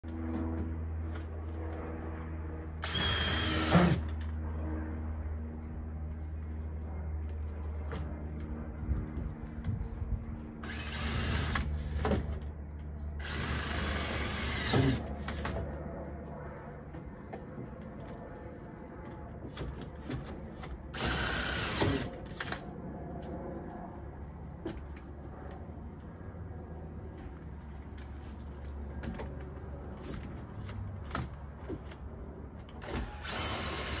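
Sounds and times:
cordless drill driving screws: 0:02.8 - 0:04.1, 0:13.2 - 0:15.0, 0:21.0 - 0:22.1, 0:32.9 - 0:34.0.

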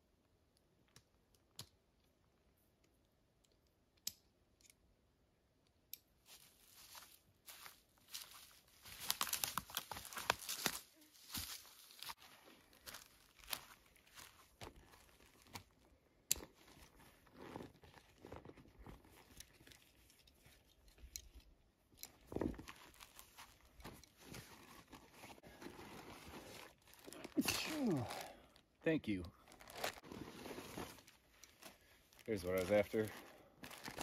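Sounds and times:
dry bag rustling and crinkling: 0:06.6 - 0:15.7, 0:16.5 - 0:20.6, 0:22.2 - 0:34.0.

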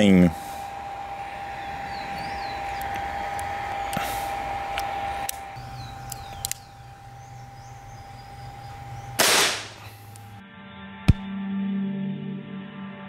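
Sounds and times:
revolver cylinder clicking shut: 0:01.6 - 0:10.4.

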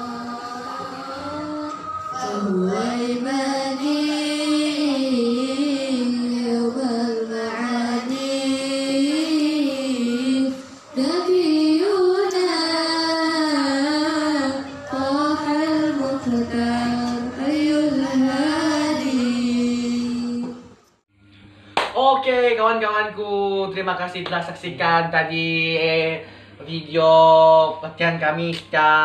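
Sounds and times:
woman singing: 0:00.0 - 0:20.8.

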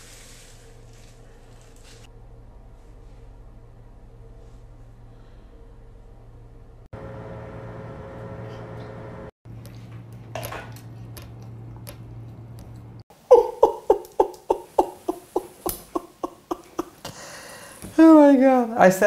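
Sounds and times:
low hum: 0:01.2 - 0:13.0
man laughing hard: 0:13.3 - 0:17.0.

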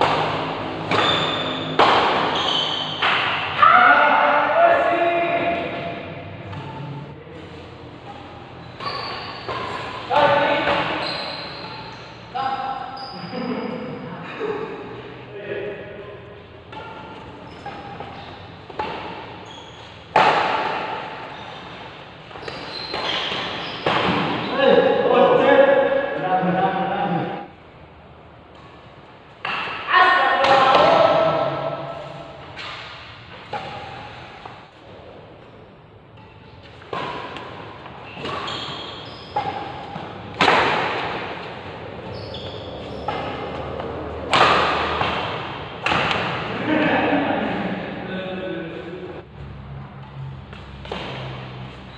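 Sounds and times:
racket hitting shuttlecock: 0:00.0 - 0:03.6, 0:05.5 - 0:12.0, 0:16.5 - 0:25.0, 0:28.5 - 0:46.6, 0:50.0 - 0:51.8.

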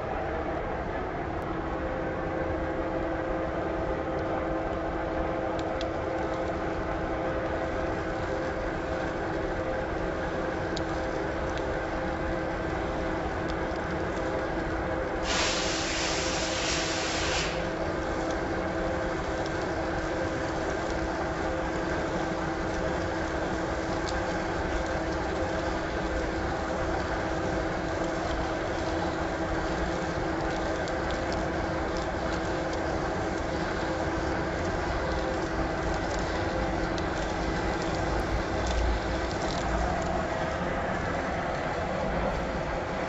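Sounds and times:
steady mechanical hum: 0:00.0 - 0:43.0
hiss: 0:15.2 - 0:24.3.

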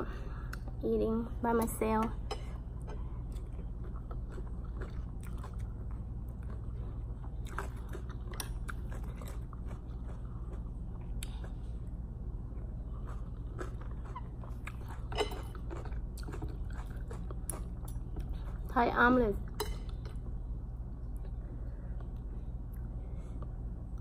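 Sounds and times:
steady low hum: 0:00.0 - 0:24.0
person chewing and crunching: 0:02.8 - 0:11.7, 0:12.6 - 0:18.7.

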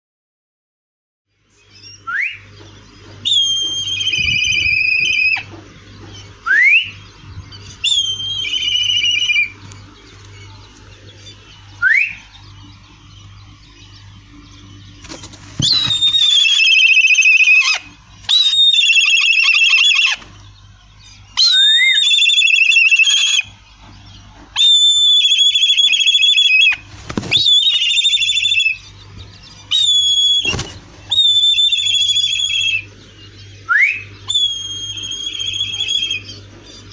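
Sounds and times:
bird whistled calls: 0:01.6 - 0:02.5, 0:03.2 - 0:05.5, 0:06.3 - 0:09.6, 0:11.8 - 0:12.4, 0:15.6 - 0:20.2, 0:21.3 - 0:23.5, 0:24.5 - 0:28.9, 0:29.5 - 0:32.9, 0:33.5 - 0:36.9.

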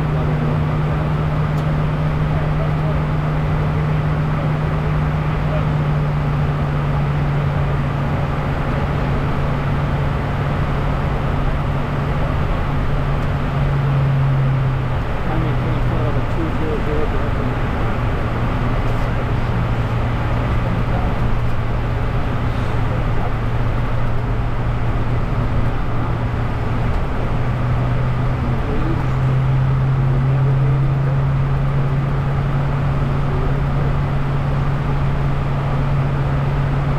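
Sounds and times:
steady low hum: 0:00.0 - 0:36.9
jet cockpit air rush and engine noise: 0:10.5 - 0:36.1.

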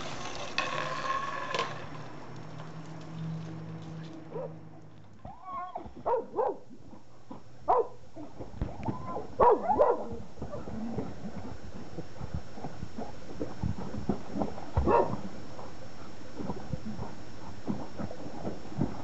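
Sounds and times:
dog barking and yelping: 0:04.3 - 0:04.6, 0:05.5 - 0:06.6, 0:07.7 - 0:08.0, 0:09.1 - 0:10.2, 0:14.9 - 0:15.2.

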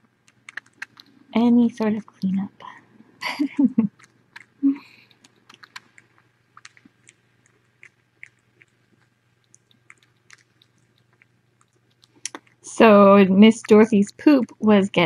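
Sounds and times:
kitten suckling wet clicks: 0:00.2 - 0:01.2, 0:03.8 - 0:12.7.

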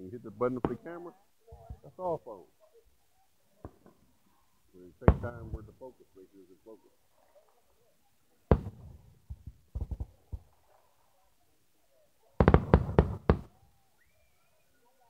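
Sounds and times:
firework shells bursting: 0:05.0 - 0:05.7, 0:08.5 - 0:10.6, 0:12.4 - 0:13.6.

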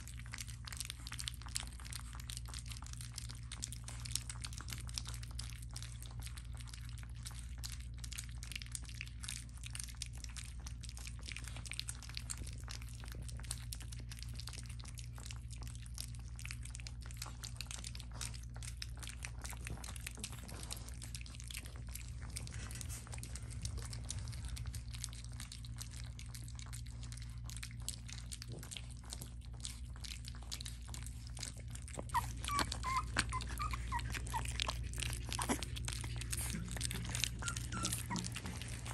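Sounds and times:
puppies lapping food: 0:00.0 - 0:38.9
steady low hum: 0:00.0 - 0:38.9
puppy squeaks: 0:31.9 - 0:35.7, 0:36.5 - 0:38.9.

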